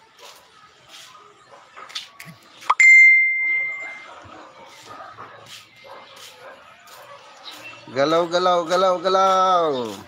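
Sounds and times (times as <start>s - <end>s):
high clear ding: 2.7s - 4.0s.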